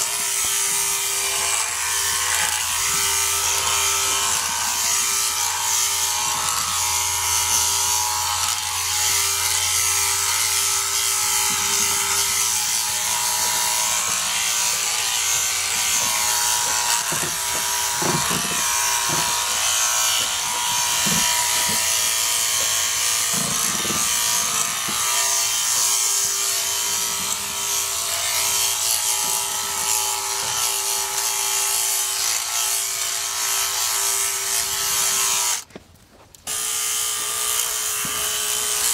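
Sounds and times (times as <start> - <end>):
electric shears buzzing: 0.0 - 35.7, 36.5 - 38.9.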